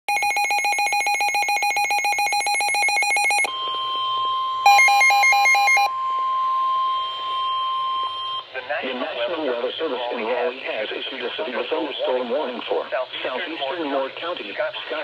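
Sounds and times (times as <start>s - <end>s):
rapid electronic beeping: 0.1s - 5.9s
steady single-pitch alarm tone: 0.1s - 8.5s
warbling two-note alarm: 2.3s - 8.5s.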